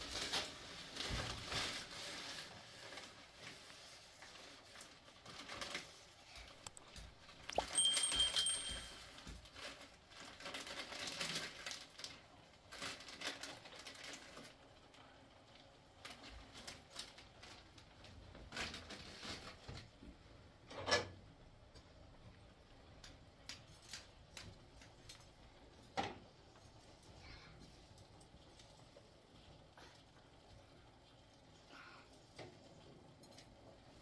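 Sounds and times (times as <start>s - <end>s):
handling rustles and knocks: 6.6s - 11.8s
short ringing clink: 7.6s - 9.0s.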